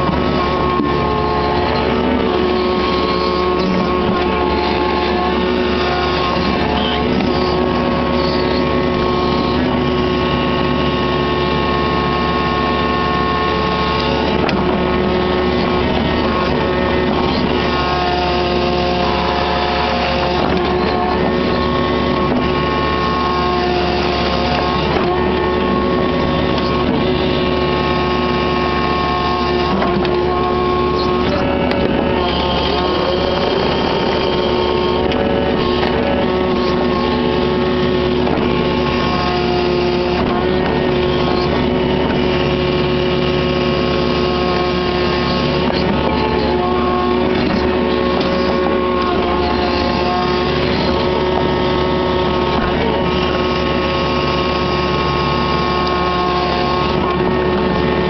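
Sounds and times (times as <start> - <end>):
excavator diesel engine running: 0.0 - 58.0
hydraulics whining: 0.0 - 58.0.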